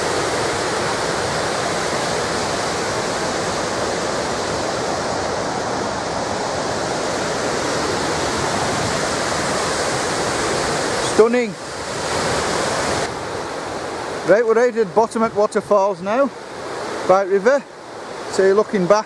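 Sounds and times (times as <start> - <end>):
white water rushing down rocks: 0.0 - 19.0.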